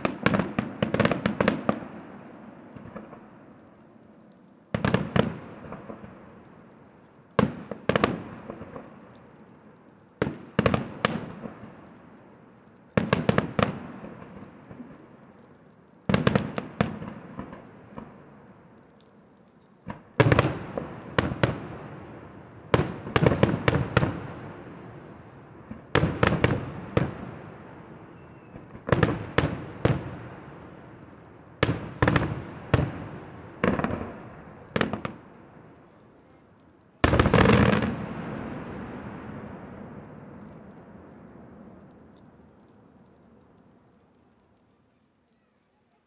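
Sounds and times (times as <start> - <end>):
firework shells bursting: 0.0 - 45.8.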